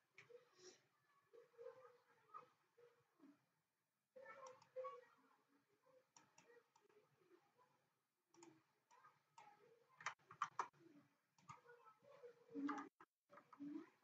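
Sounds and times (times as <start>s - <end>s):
mouse clicks: 6.1s - 6.9s, 8.3s - 10.8s.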